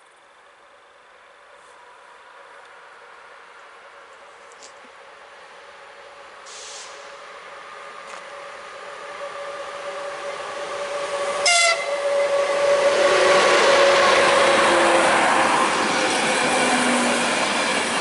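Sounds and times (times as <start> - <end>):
train wheel and rail noise: 0.0 - 18.0
locomotive horn blast: 11.1 - 15.1.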